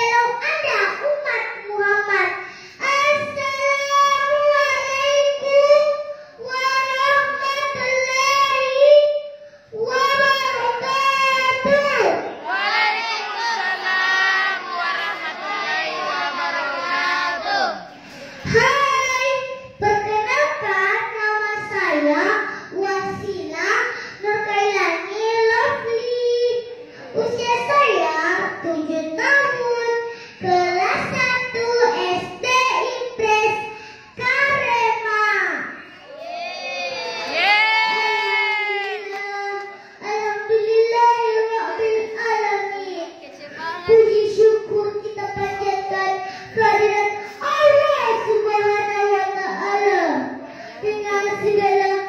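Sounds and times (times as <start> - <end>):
girl chanting into a microphone: 0.0 - 35.9, 37.9 - 52.0
girl singing: 37.3 - 50.3.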